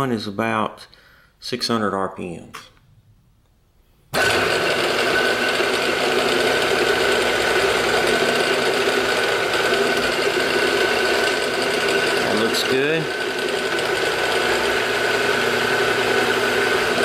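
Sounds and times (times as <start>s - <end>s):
milling machine spindle running: 4.2s - 17.0s.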